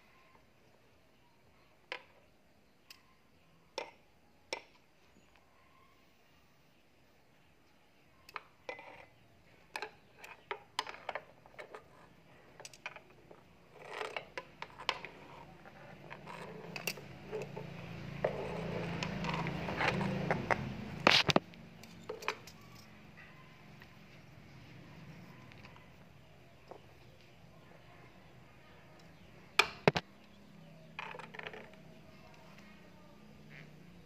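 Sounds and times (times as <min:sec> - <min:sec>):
taps and scrapes on tiled floor: 0:12.6 - 0:22.6.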